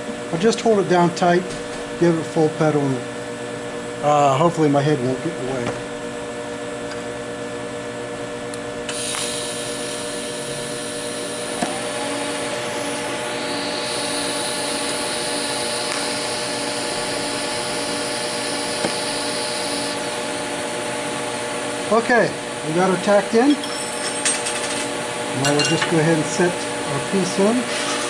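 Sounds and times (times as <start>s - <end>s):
welder hum: 8.1s - 28.0s
welding arc hissing: 8.9s - 20.5s
welding arc high tone: 8.9s - 28.0s.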